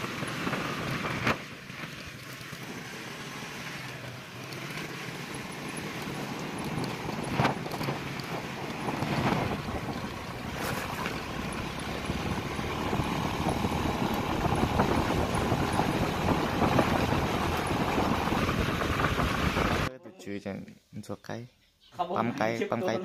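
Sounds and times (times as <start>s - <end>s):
motorcycle engine: 0.0s - 19.9s
tyres rumbling on dirt: 0.0s - 19.9s
wind buffeting microphone: 6.3s - 19.9s.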